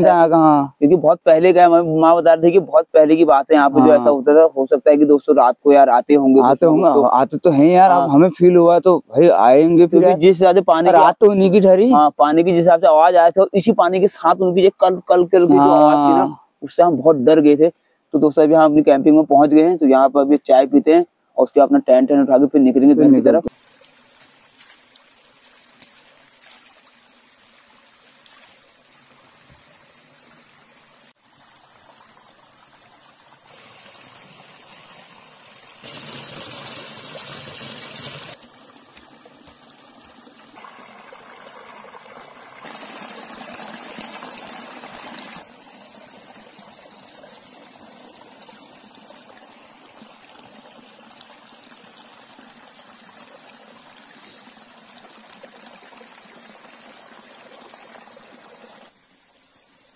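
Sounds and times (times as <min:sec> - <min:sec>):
rocky stream trickling: 0:23.4 - 0:59.9
water splashing and pouring: 0:23.5 - 0:59.9.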